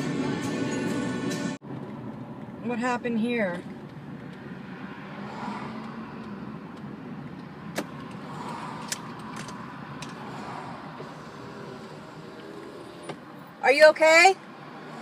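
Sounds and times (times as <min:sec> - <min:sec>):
car road and engine noise: 0:00.0 - 0:15.0.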